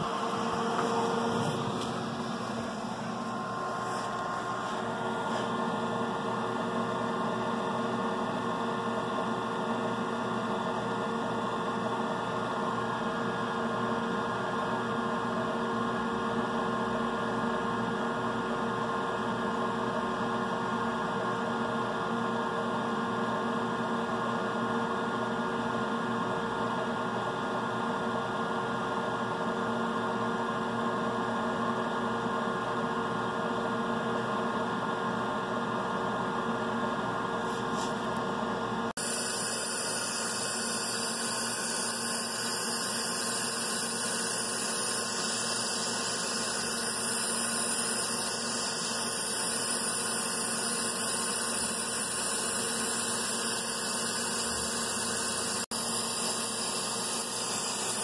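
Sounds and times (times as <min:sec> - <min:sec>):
machine humming with steady tones: 0:00.0 - 0:58.0
compressed air hissing: 0:39.0 - 0:58.0.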